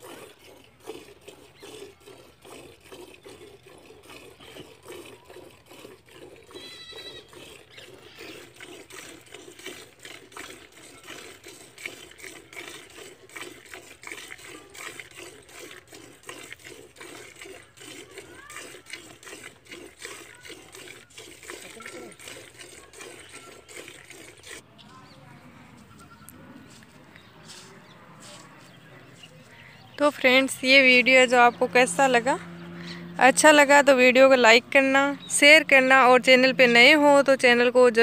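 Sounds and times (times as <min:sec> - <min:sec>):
milk squirting into a bucket: 0:00.0 - 0:24.6.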